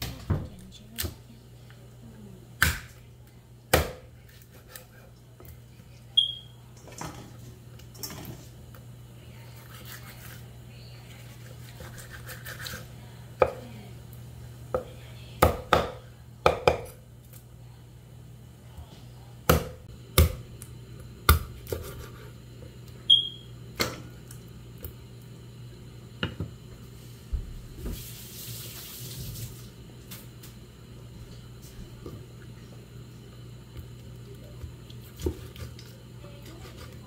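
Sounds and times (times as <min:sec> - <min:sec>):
steady low hum: 0:00.0 - 0:28.0, 0:29.3 - 0:37.0
knife chopping on wooden board: 0:15.4 - 0:17.0, 0:19.5 - 0:20.4, 0:21.3 - 0:22.2.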